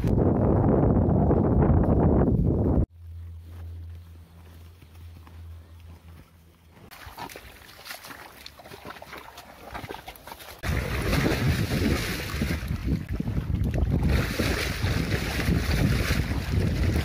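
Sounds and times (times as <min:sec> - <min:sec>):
wind buffeting microphone: 0:00.0 - 0:02.9, 0:10.6 - 0:17.0
squelches in mud: 0:03.0 - 0:17.0
water sloshing: 0:06.9 - 0:17.0.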